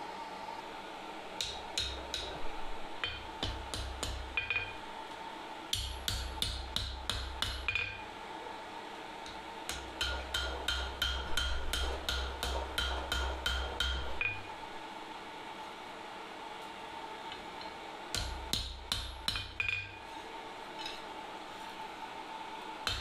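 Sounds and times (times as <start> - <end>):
faint hum: 0.0 - 23.0
hammer striking steel on anvil: 1.4 - 2.4, 3.0 - 4.8, 5.7 - 8.1, 9.3 - 14.5, 18.1 - 20.0.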